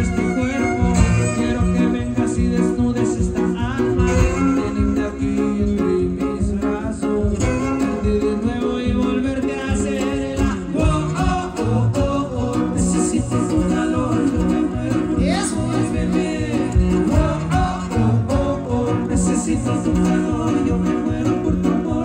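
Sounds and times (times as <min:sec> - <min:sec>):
violin melody: 0:00.0 - 0:02.6
strummed guitars: 0:00.0 - 0:22.0.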